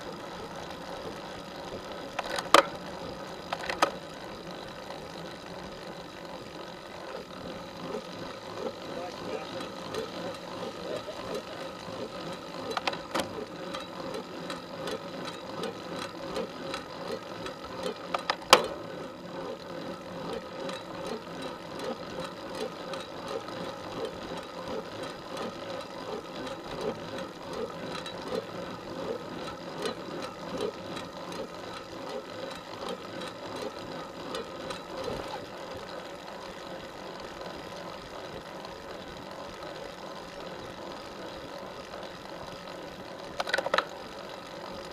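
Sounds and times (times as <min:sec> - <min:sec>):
bicycle rhythmic rattle: 0:00.0 - 0:44.9
bicycle sharp click: 0:00.3 - 0:19.0, 0:40.2 - 0:44.4.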